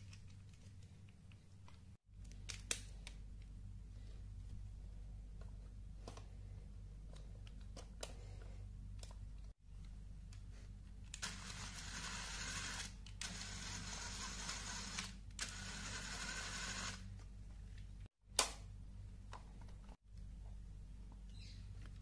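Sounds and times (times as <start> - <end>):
small electric motor whirring: 11.2 - 17.1.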